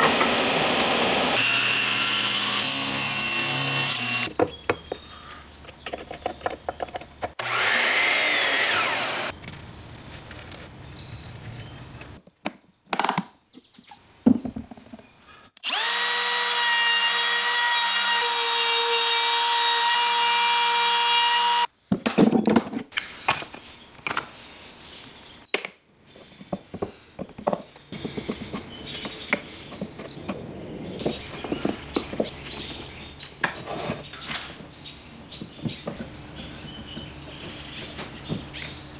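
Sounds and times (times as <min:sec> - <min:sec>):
trim router whining: 0:00.0 - 0:04.3, 0:07.4 - 0:09.3, 0:15.6 - 0:21.7
wood and tools knocking: 0:04.2 - 0:05.1, 0:05.7 - 0:07.6, 0:14.2 - 0:15.0, 0:25.5 - 0:32.7.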